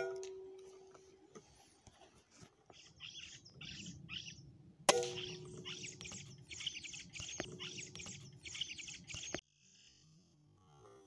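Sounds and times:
small birds chirping: 0:02.6 - 0:10.1.

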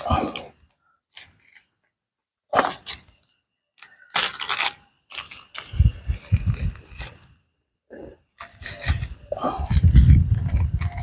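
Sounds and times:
plastic packet crinkling: 0:03.8 - 0:07.0.

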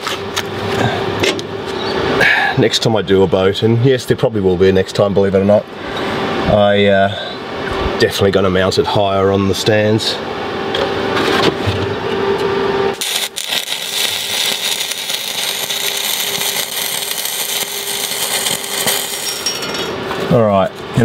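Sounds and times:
welder humming: 0:12.4 - 0:21.0
welding arc crackling and hissing: 0:12.9 - 0:20.2.

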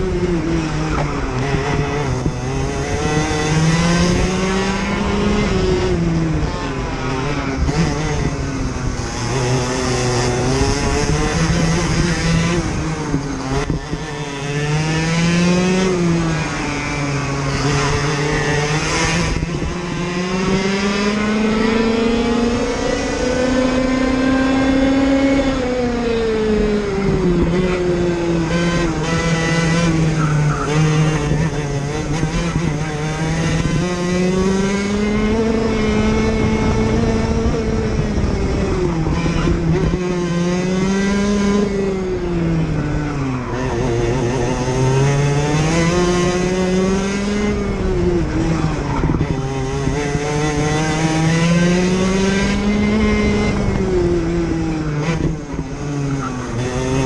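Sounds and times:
kart engine at racing speed: 0:00.0 - 0:57.0.

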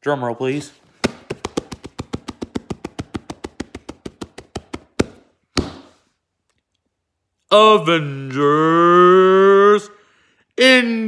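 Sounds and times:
rapid taps on a hard surface: 0:01.0 - 0:05.8.

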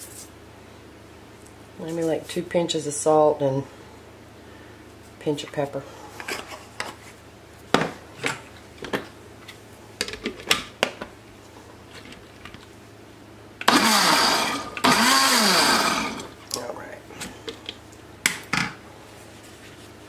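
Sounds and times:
blender motor spinning: 0:13.6 - 0:16.4.

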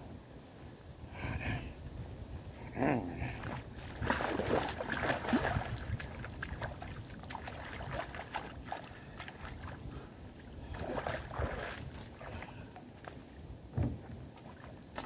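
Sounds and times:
river water splashing: 0:03.2 - 0:15.0.

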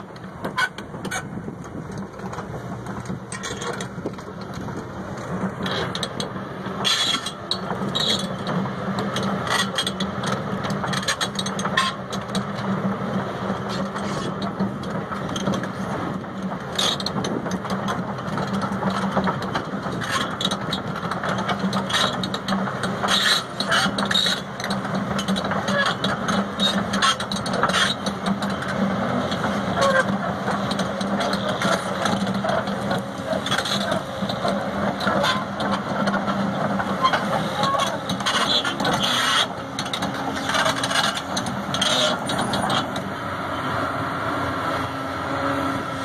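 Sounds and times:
diesel engine idling: 0:27.6 - 0:46.0.

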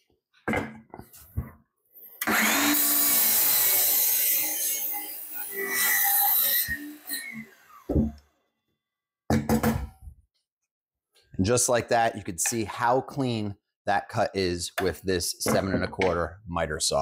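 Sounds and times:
miter saw cutting wood: 0:02.2 - 0:08.2.

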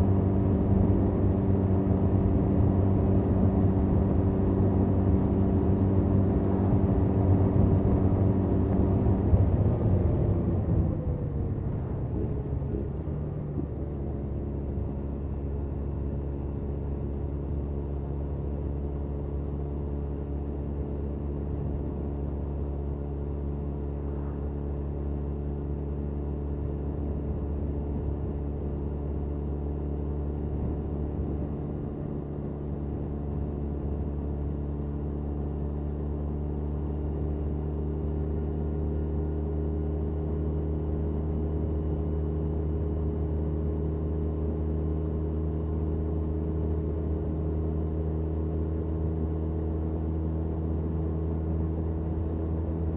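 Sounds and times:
motorcycle engine cruising: 0:00.0 - 0:19.4.

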